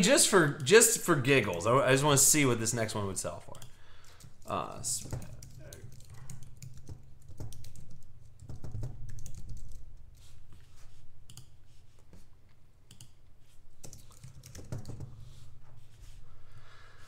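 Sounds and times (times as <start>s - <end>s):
typing on computer keyboard: 3.5s - 10.0s, 11.3s - 11.6s, 12.9s - 13.2s, 13.8s - 15.1s.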